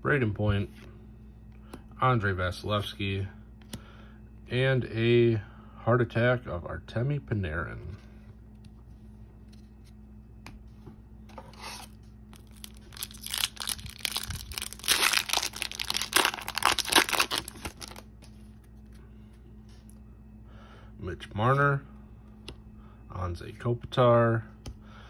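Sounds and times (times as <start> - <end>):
foil wrapper tearing and crinkling: 11.8 - 18.1.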